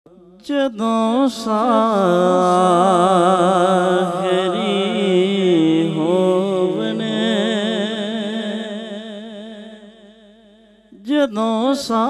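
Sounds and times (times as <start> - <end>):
man singing: 0.2 - 9.8, 11.0 - 12.0.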